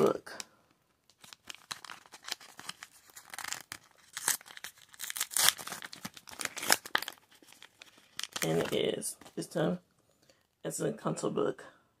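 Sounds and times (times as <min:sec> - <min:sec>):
wrapper pouch tearing and crinkling: 0:01.1 - 0:09.4.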